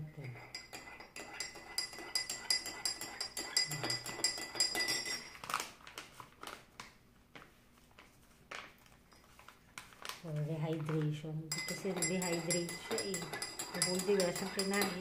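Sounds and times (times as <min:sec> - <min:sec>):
spoon clinking against glass: 0:00.3 - 0:05.4, 0:11.5 - 0:15.0.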